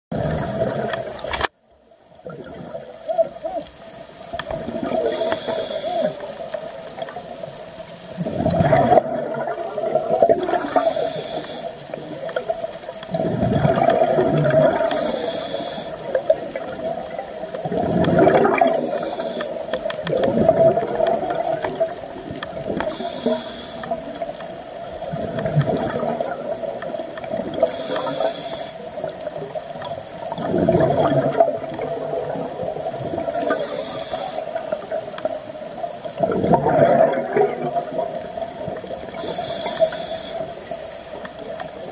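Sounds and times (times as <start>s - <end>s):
exhaled bubbles gurgling: 0.1s - 1.3s, 2.2s - 41.9s
regulator inhale hiss: 5.0s - 6.6s, 10.5s - 12.1s, 14.8s - 16.2s, 18.7s - 19.8s, 22.7s - 24.3s, 27.5s - 29.0s, 33.3s - 34.8s, 39.1s - 41.3s.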